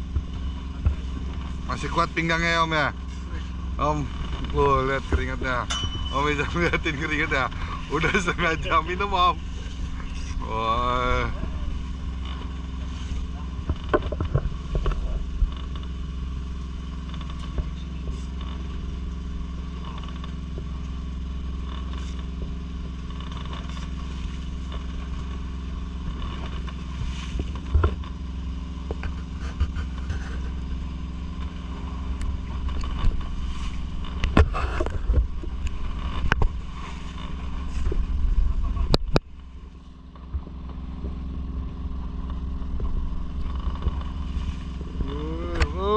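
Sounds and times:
boat engine humming: 0.0s - 45.9s
fishing gear knocks and scrapes: 12.2s - 15.9s.

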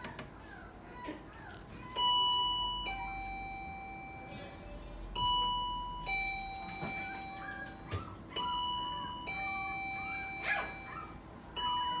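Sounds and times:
two-tone doorbell chime: 2.0s - 12.0s
puppy whimpering: 6.7s - 12.0s.

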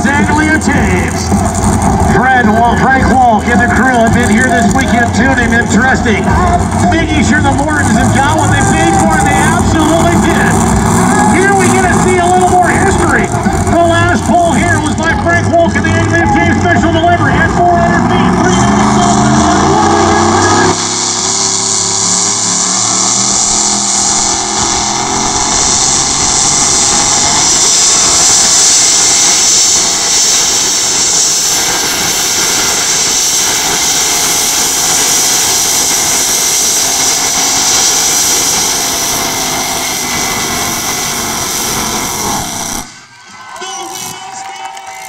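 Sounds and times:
vehicle engine under heavy load: 0.0s - 45.0s.

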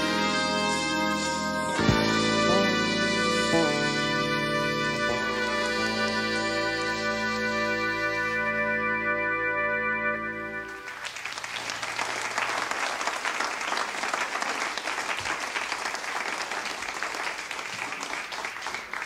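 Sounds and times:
jazz band chord: 0.0s - 10.9s
audience applauding: 10.7s - 19.0s.

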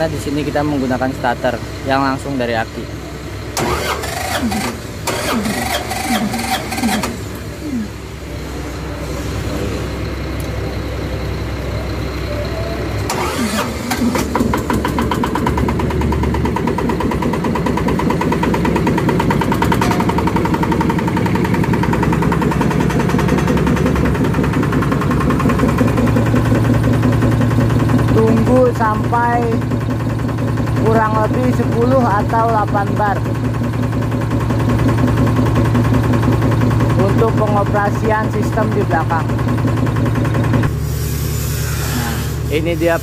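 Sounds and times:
diesel engine running: 0.0s - 43.0s
electric starter cranking: 3.5s - 7.5s, 13.0s - 32.7s.

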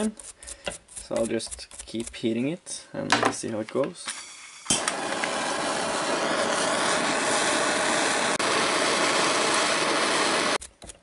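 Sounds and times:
blowtorch flame hissing: 4.2s - 10.6s.

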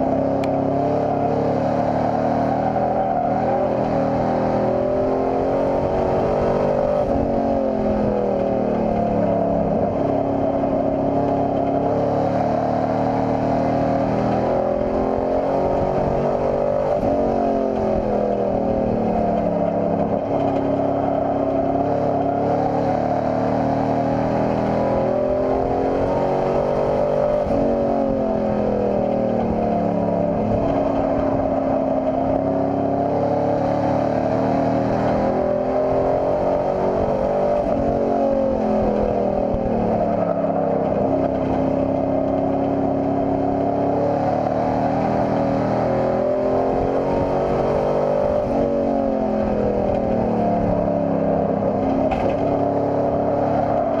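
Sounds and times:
race truck engine revving: 0.0s - 54.0s.

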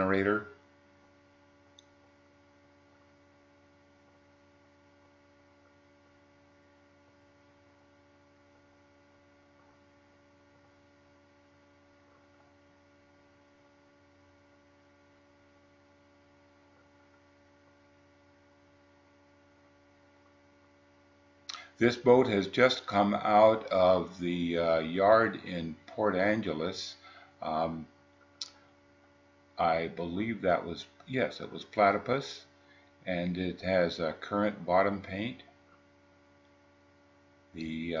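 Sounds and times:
faint steady hum: 0.0s - 38.0s
small click: 21.5s - 21.7s.

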